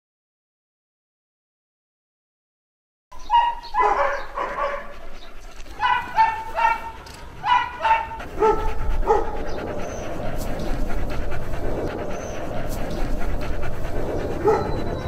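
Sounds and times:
dogs barking and yelping: 3.2 - 15.0.

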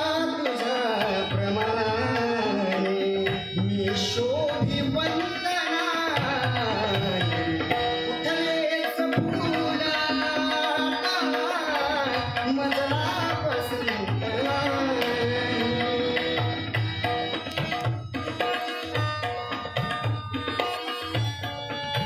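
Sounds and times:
man singing: 0.0 - 17.3
harmonium melody: 0.0 - 22.0
tabla rhythm: 0.0 - 22.0.

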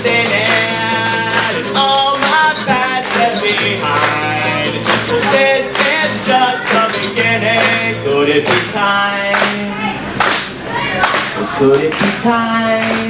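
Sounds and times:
man singing: 0.0 - 9.9, 11.4 - 13.0
acoustic guitar strumming: 0.0 - 10.2.

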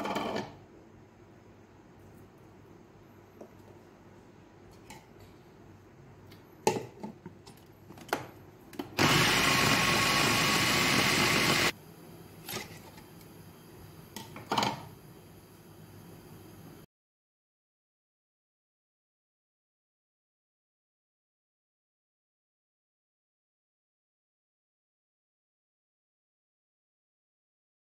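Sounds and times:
electric blender running: 9.0 - 11.8.

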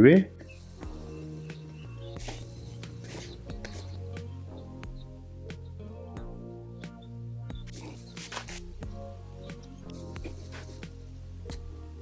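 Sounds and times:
quiet background music: 0.0 - 12.0.

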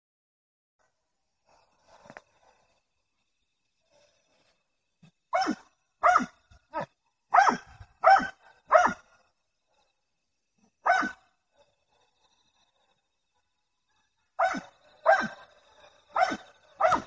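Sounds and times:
dog barking: 5.3 - 9.0, 10.8 - 11.2, 14.4 - 15.5, 16.1 - 17.0.

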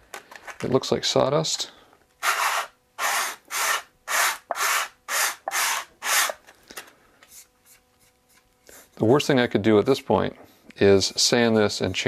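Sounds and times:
hand sanding wood: 2.2 - 6.4, 10.8 - 12.0.

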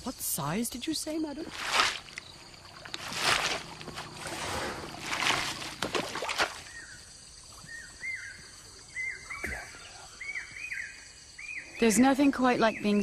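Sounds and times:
insects droning: 0.0 - 13.0
water splashing: 1.4 - 7.8
bird chirping: 6.6 - 13.0.

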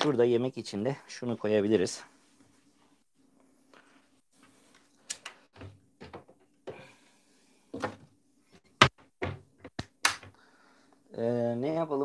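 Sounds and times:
faint steady hum: 0.0 - 12.0
doors and cupboards knocking shut: 8.8 - 9.8.

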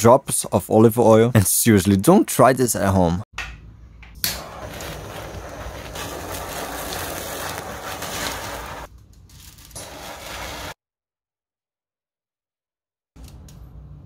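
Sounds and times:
blowtorch flame hissing: 4.4 - 8.9, 9.8 - 10.8.

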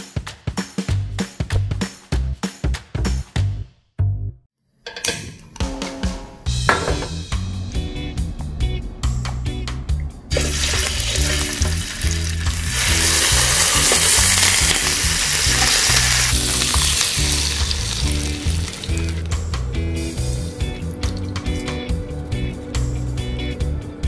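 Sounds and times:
background music: 4.8 - 24.0
chicken sizzling in hot oil: 10.3 - 19.4.

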